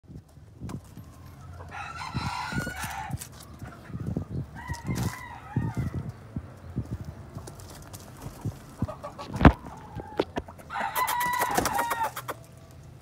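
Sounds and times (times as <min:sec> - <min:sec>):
rooster crowing: 0:01.7 - 0:03.2, 0:04.6 - 0:06.1, 0:10.0 - 0:12.4
low thumps and knocks: 0:08.2 - 0:10.6.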